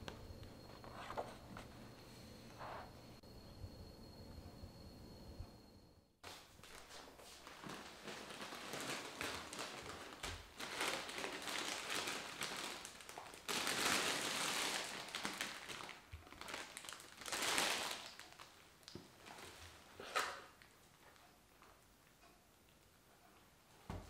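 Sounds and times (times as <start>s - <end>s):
plastic bag crinkling: 6.6s - 20.7s.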